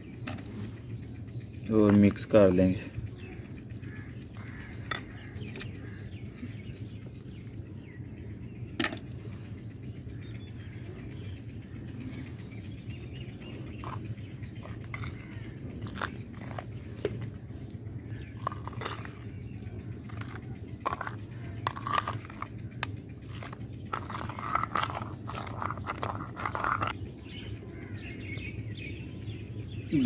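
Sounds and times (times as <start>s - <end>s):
steady low hum: 0.0s - 30.0s
spoon scraping clay bowl: 13.7s - 17.4s, 18.3s - 27.0s.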